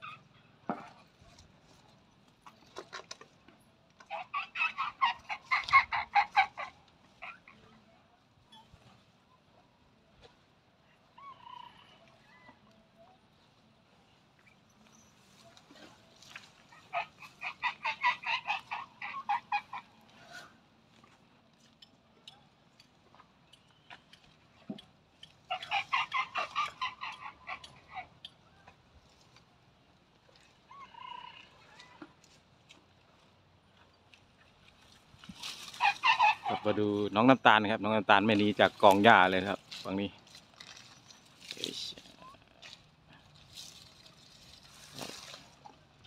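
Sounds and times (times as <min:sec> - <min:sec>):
elephant squeaking: 0:00.0 - 0:01.0, 0:04.0 - 0:09.0, 0:14.4 - 0:20.6, 0:25.4 - 0:28.7, 0:35.3 - 0:37.2
animal calls: 0:00.0 - 0:03.2, 0:04.0 - 0:09.6, 0:10.9 - 0:21.2, 0:23.1 - 0:29.4, 0:30.4 - 0:32.4, 0:35.3 - 0:37.4.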